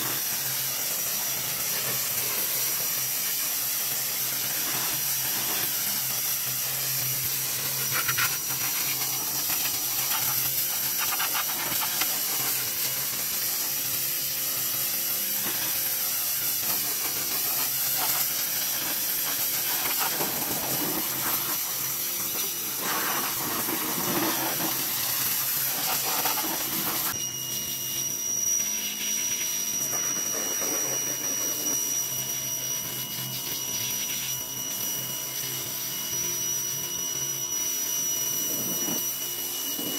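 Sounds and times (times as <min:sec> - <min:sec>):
pressure washer spray hissing: 0:00.0 - 0:27.2
high steady whine: 0:00.0 - 0:39.9.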